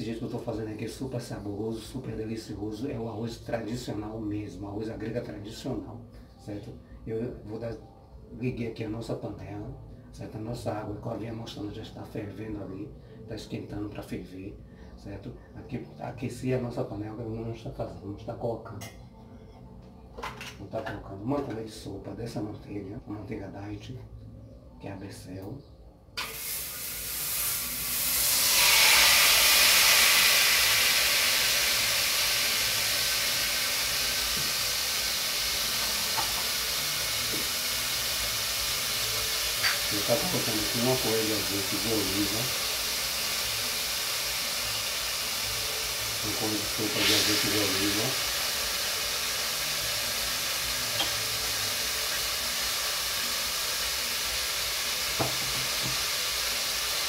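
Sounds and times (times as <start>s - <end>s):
margarine sizzling in a pan: 26.2s - 57.0s.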